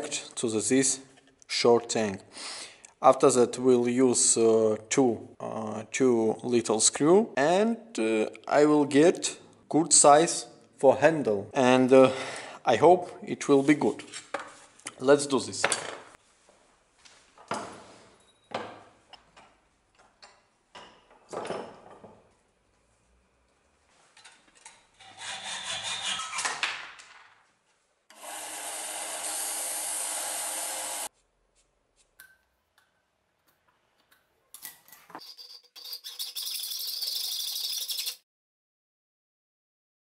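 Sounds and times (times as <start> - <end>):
hacksaw rasping through metal: 25.0 - 26.6.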